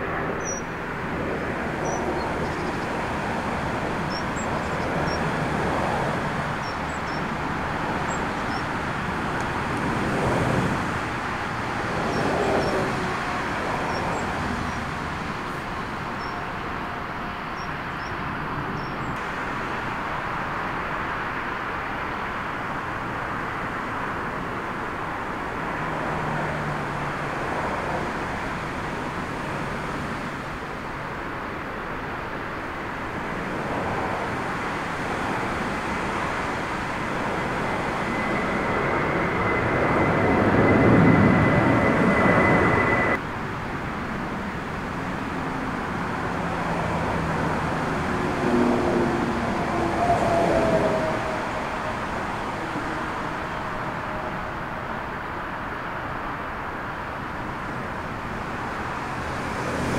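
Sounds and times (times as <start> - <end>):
airliner passing overhead: 0.0 - 59.9
high jet engine whine: 0.0 - 59.9
storm wind rushing: 33.1 - 43.2, 45.0 - 54.6.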